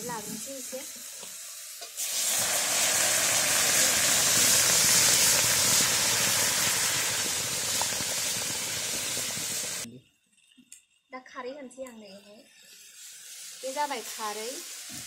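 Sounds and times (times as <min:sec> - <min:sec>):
water hissing in hot wok: 0:00.0 - 0:09.9, 0:12.3 - 0:15.0.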